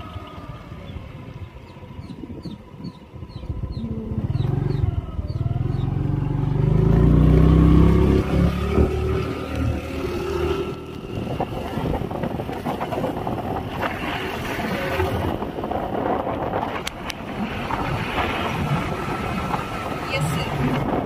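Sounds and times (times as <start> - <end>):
motorbike road and engine noise: 0.0 - 21.0
wind on microphone: 0.0 - 21.0.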